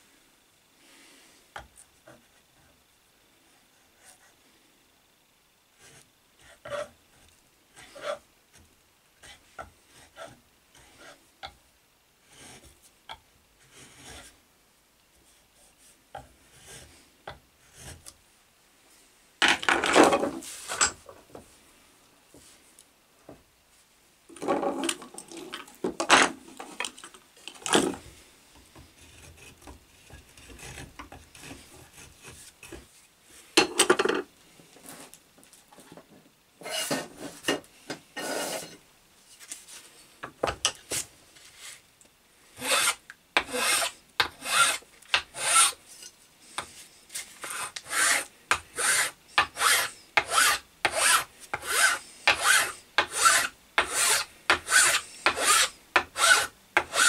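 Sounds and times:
hand file rasping on wood: 42.6s - 45.8s, 47.4s - 57.0s.

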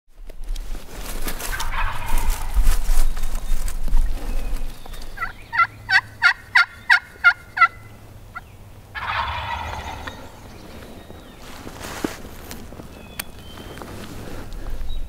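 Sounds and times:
turkey gobble: 1.4s - 2.6s, 5.2s - 10.6s
turkey call yelps: 1.5s - 2.5s, 5.2s - 10.5s.

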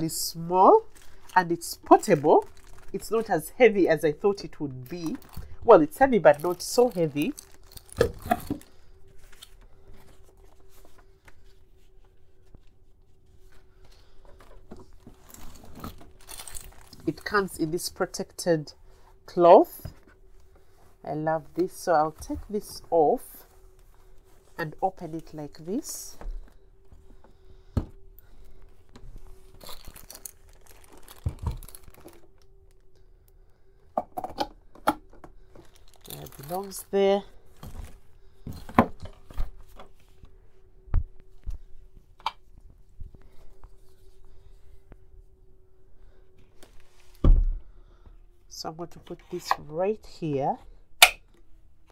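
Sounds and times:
faint steady hum: 0.0s - 51.9s
plastic rustling: 0.1s - 17.9s, 28.2s - 32.6s, 35.4s - 40.2s
plastic packaging crinkling: 0.3s - 11.1s, 14.8s - 17.7s, 29.1s - 32.8s, 35.4s - 37.0s.

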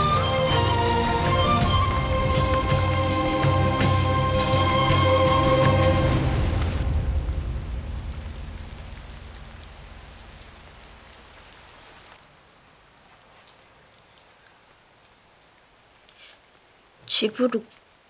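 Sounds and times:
background music: 0.0s - 8.4s
steady rain falling: 0.0s - 18.0s.

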